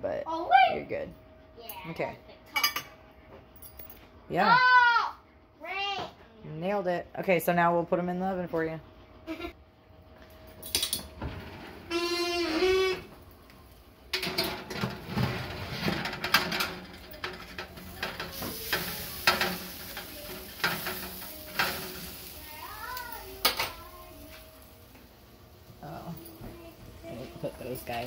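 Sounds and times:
steaks sizzling on a metal pan: 16.0s - 28.0s.

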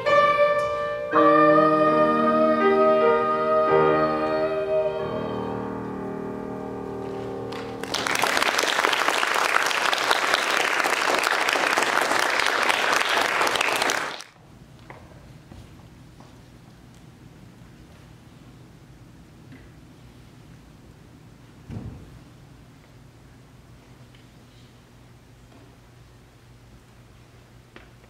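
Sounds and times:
girl singing: 0.0s - 6.0s
piano accompaniment: 0.0s - 9.0s
audience applauding: 7.5s - 14.4s.

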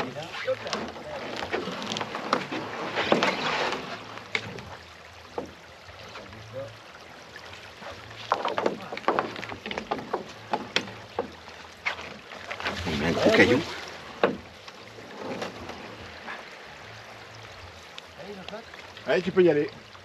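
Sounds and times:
oars clicking in oarlocks: 0.0s - 6.4s, 7.2s - 16.8s
water splashing: 0.0s - 20.0s.

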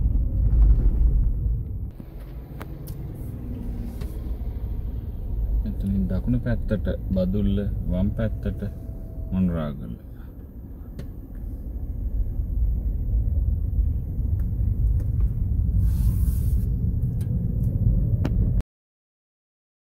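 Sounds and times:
car engine rumble: 0.0s - 18.6s
tyres on the road: 0.0s - 18.6s
brief hiss: 15.8s - 16.7s.

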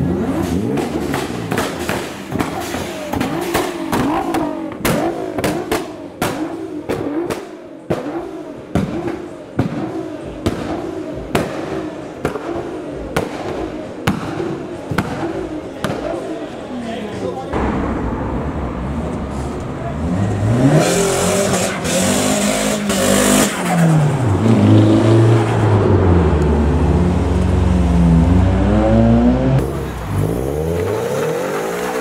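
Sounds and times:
car engine revving: 0.0s - 16.6s, 17.5s - 32.0s
exhaust pops and bangs: 0.2s - 16.2s, 17.6s - 19.7s.

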